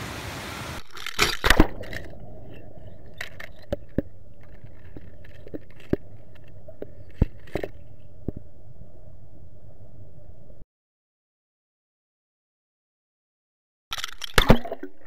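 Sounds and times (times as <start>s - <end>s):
sharp underwater clicks and knocks: 0.8s - 8.6s, 13.9s - 15.0s.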